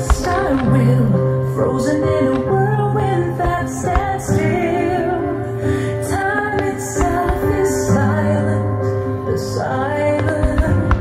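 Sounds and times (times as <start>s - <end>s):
woman singing: 0.0s - 11.0s
short thuds: 3.4s - 4.4s.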